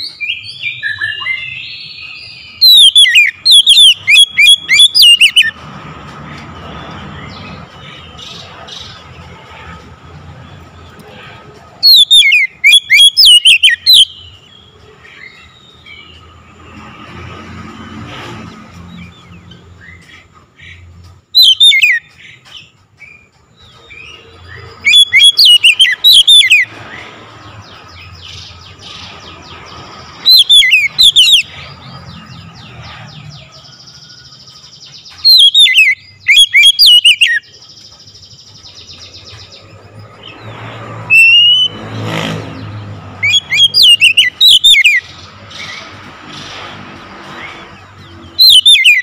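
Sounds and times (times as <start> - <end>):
bird singing whistled notes: 0.0 - 5.6, 11.8 - 16.4, 21.3 - 26.8, 30.2 - 31.6, 33.7 - 41.8, 43.2 - 45.8, 48.2 - 49.0.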